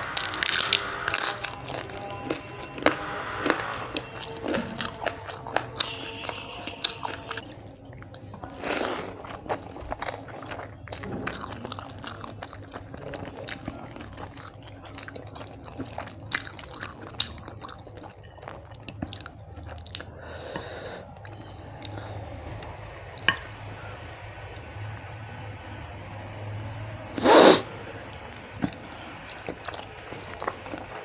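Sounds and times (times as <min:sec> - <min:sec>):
wet chewing and lip smacking: 0:03.6 - 0:20.3.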